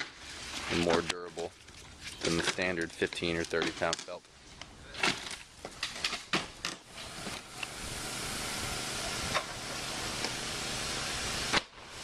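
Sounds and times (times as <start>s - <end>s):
steady hiss: 6.9s - 12.0s.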